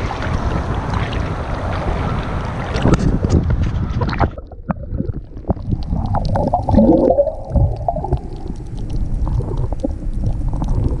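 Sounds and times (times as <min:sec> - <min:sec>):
muffled underwater water rumble: 0:00.0 - 0:11.0
water gurgle: 0:00.0 - 0:11.0
clicks and crackles: 0:02.7 - 0:11.0.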